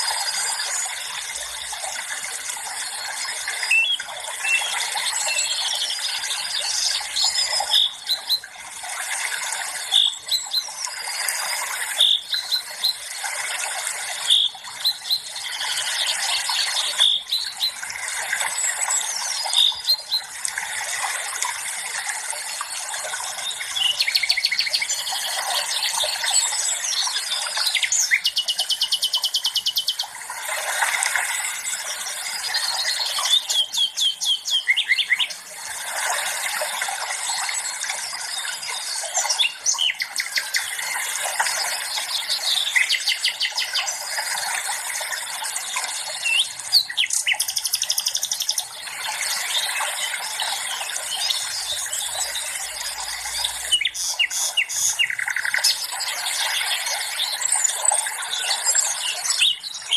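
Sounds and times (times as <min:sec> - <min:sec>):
songbirds trilling and chirping: 0:00.0 - 0:59.9.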